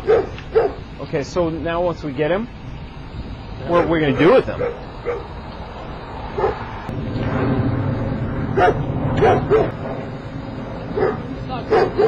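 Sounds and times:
dog barking: 0.0s - 0.8s, 3.8s - 5.3s, 6.4s - 6.6s, 8.6s - 9.8s, 11.0s - 12.0s.

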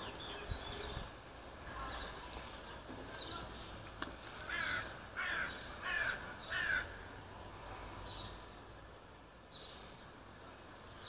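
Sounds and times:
small birds chirping: 0.0s - 11.0s
crow cawing: 4.4s - 7.0s.

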